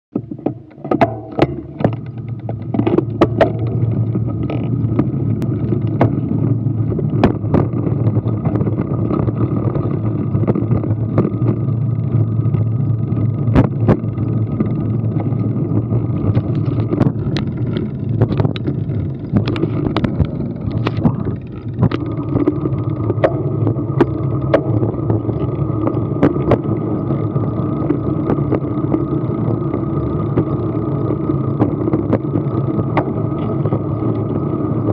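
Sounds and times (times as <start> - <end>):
road rumble: 0.1 - 34.9
sharp knocks and rattles: 0.1 - 34.9
wind on camera: 0.2 - 34.9.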